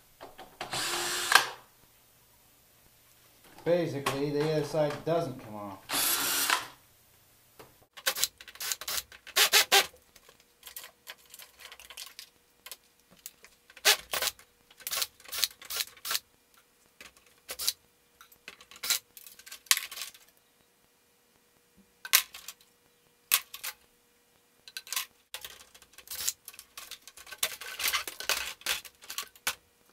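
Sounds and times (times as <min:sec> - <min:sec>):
cordless drill-driver: 0:00.6 - 0:01.6, 0:05.9 - 0:06.8, 0:08.1 - 0:09.9
metallic clicks and rattles: 0:10.2 - 0:13.8, 0:24.7 - 0:29.6.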